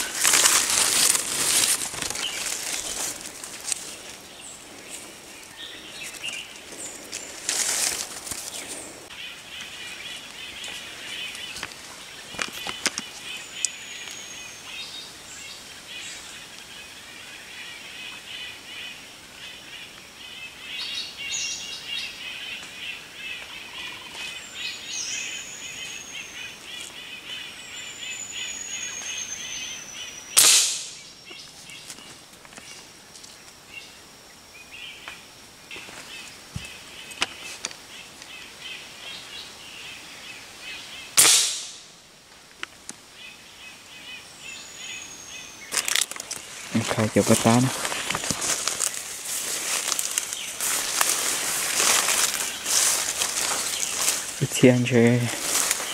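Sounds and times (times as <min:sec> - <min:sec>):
birds trilling chorus: 0:00.0 - 0:41.2, 0:43.1 - 0:55.9
rifle shots: 0:41.2 - 0:41.8
birds whistling: 0:48.6 - 0:55.9.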